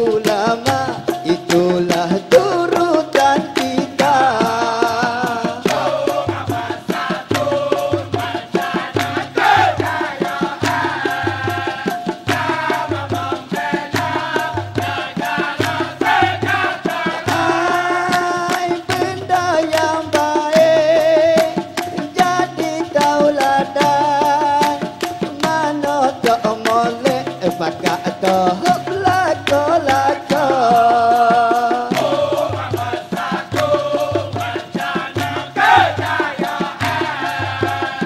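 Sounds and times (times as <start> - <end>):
frame drums beating: 0.0 - 38.0
maracas: 0.0 - 38.0
person singing chant-like solo: 29.1 - 38.0.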